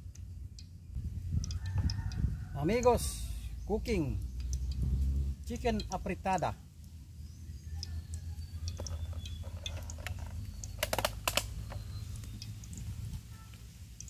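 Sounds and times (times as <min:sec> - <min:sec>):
low steady rumble: 0:00.0 - 0:14.0
wood fire crackling: 0:08.1 - 0:14.0.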